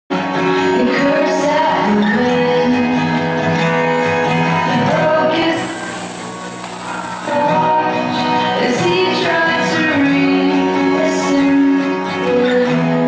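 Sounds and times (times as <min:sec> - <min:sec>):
girl singing into a microphone: 0:00.7 - 0:03.1, 0:08.6 - 0:13.0
steady high-pitched whine: 0:05.5 - 0:07.7
backing music: 0:05.5 - 0:08.9.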